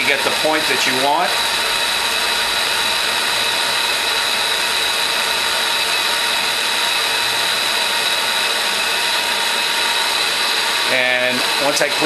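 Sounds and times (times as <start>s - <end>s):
propane torch hissing: 0.0s - 12.0s.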